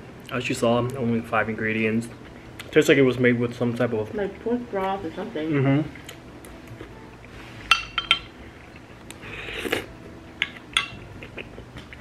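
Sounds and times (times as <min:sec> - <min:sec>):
chopsticks and dishes clinking: 0:07.6 - 0:08.9, 0:10.4 - 0:11.6.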